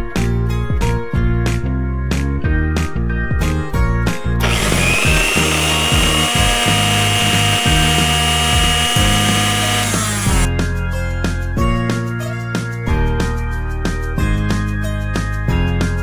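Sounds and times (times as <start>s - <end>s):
background music: 0.0s - 16.0s
small mixer grinder whining: 4.4s - 10.5s.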